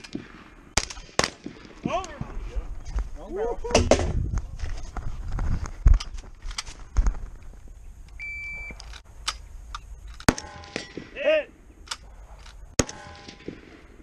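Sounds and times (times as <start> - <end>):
rifle shots: 0.0 - 1.9, 10.2 - 14.0.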